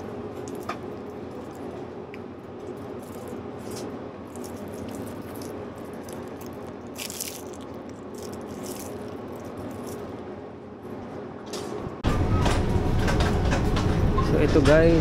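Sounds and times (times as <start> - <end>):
steady background hum: 0.0 - 15.0
plastic wrapping crinkling: 2.6 - 10.2.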